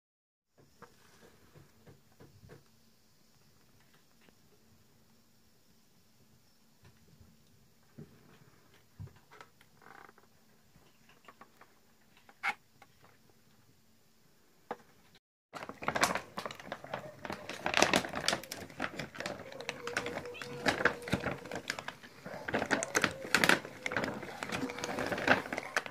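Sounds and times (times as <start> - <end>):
cats crunching dry kibble: 15.6 - 25.9.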